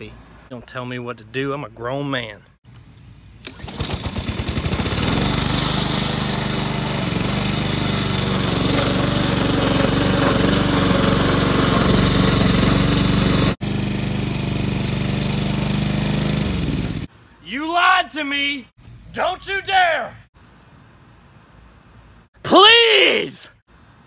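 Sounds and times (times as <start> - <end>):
lawn mower engine running: 3.4 - 17.1.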